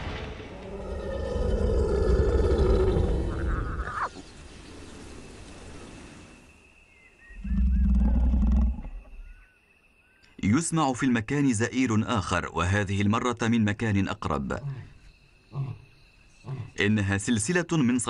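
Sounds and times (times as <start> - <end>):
lion roaring: 0.5 - 4.1.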